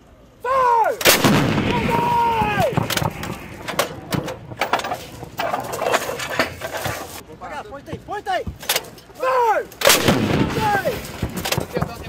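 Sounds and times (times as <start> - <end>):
person shouting: 0.4 - 1.0, 1.7 - 2.8, 9.2 - 9.7, 10.5 - 11.0
howitzer firing blast with echo: 1.0 - 4.6, 9.8 - 11.8
metal knocks and clanks: 2.5 - 9.1, 10.6 - 12.0.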